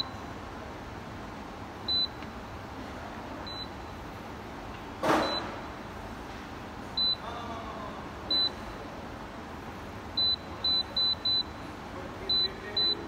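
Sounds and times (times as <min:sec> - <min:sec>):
short high beeps: 0:05.2 - 0:05.5, 0:12.3 - 0:13.0.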